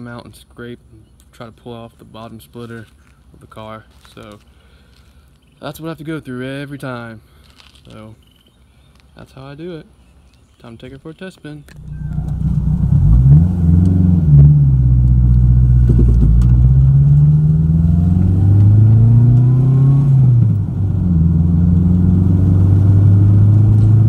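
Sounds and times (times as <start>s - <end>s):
car engine accelerating: 11.7s - 24.0s.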